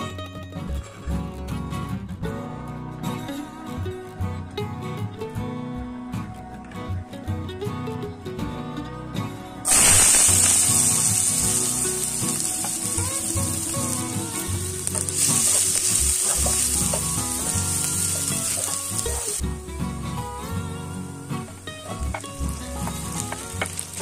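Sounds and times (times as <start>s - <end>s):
onions sizzling in oil: 9.6s - 19.4s, 20.9s - 24.0s.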